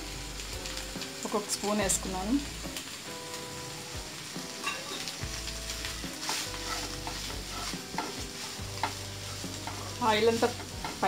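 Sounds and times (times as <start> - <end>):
oil sizzling: 0.0 - 11.0
wooden spatula scraping a pan: 5.8 - 11.0.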